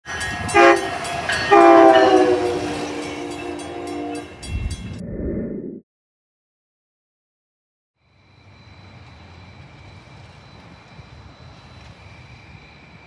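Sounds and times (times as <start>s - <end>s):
train multi-tone horn: 0.1s - 4.5s
low rumble: 4.5s - 5.8s.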